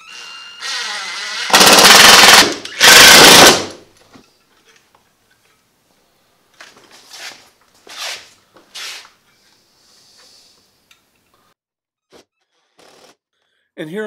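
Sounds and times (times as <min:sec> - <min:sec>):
faint hiss: 0:09.4 - 0:11.6.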